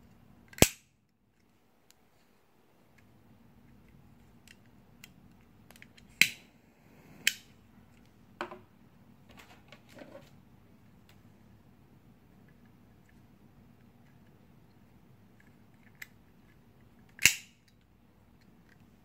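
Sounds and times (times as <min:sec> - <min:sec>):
metal lighter snapping: 0:17.2 - 0:17.5.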